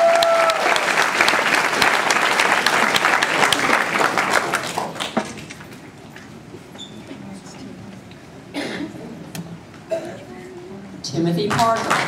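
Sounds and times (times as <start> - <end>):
audience applauding: 0.0 - 5.5, 11.4 - 12.0.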